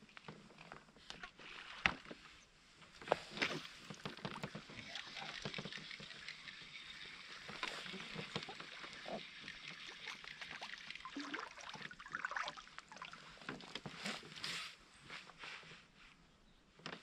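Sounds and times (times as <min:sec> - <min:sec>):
water splashing and trickling: 0:03.3 - 0:14.4.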